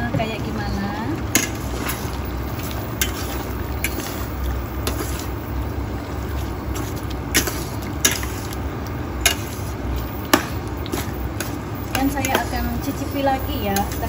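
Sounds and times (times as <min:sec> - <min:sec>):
steady low rumble: 0:00.0 - 0:14.0
spatula stirring food in pot: 0:01.2 - 0:14.0
spatula clinking against pot: 0:10.3 - 0:14.0.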